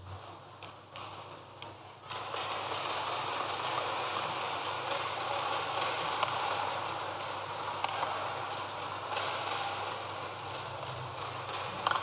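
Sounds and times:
rackets hitting shuttlecock: 7.2 - 8.2, 9.1 - 12.0.

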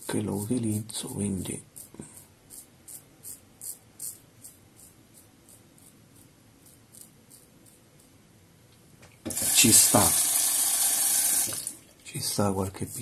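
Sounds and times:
razor scraping stubble: 0.1 - 8.2.

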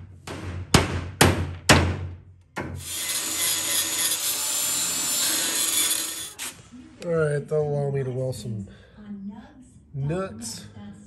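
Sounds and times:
angle grinder grinding steel: 2.8 - 6.5.

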